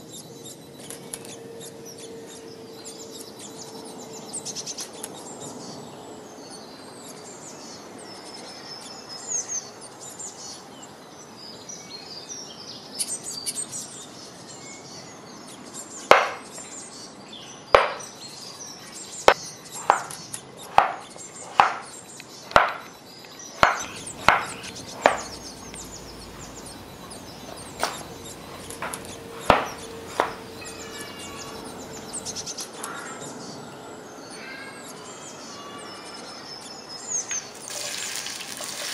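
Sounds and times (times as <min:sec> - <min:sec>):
birds chirping: 0:00.0 - 0:38.9
knife chopping potato on wooden board: 0:16.1 - 0:16.4, 0:17.8 - 0:18.0, 0:19.3 - 0:21.9, 0:22.5 - 0:22.9, 0:23.6 - 0:32.3.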